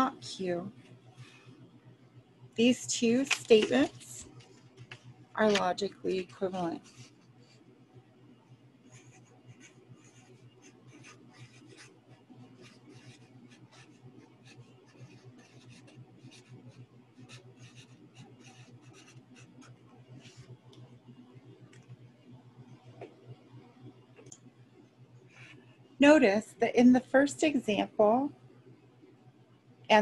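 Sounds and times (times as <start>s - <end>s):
low steady hum: 0.0s - 30.0s
marker scratching on paper: 5.4s - 7.2s, 8.9s - 20.5s.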